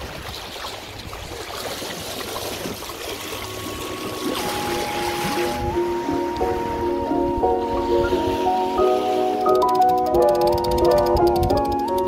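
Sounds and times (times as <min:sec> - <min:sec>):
water rushing along boat hull: 0:00.0 - 0:12.0
music with steady tones: 0:04.4 - 0:12.0.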